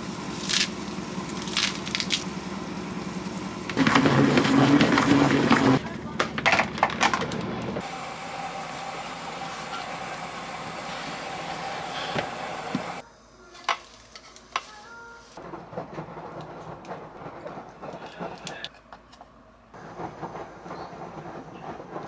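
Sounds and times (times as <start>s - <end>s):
steady hiss: 7.8s - 14.1s.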